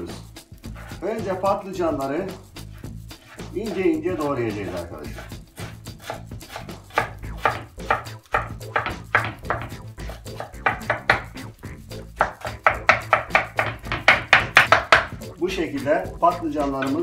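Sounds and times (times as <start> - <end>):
knife chopping on wooden board: 3.2 - 11.4, 12.2 - 15.2, 16.6 - 17.0.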